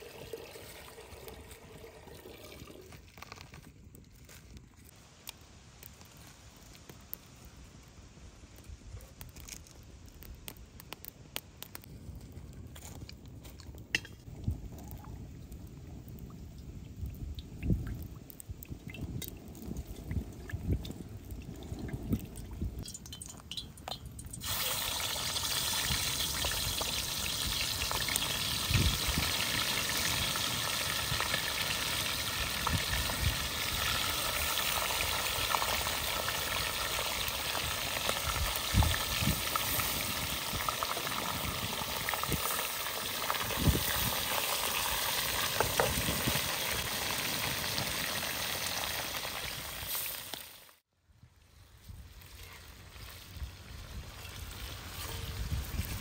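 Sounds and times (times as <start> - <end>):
oil dribbling into pan: 22.8 - 49.1
chicken sizzling in hot oil: 22.9 - 50.8.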